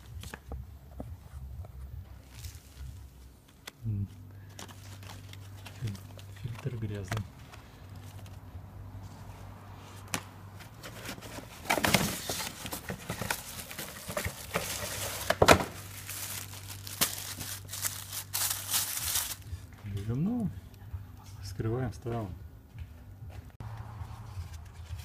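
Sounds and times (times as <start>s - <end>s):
plastic packaging crinkling: 4.4s - 8.4s, 10.9s - 19.6s.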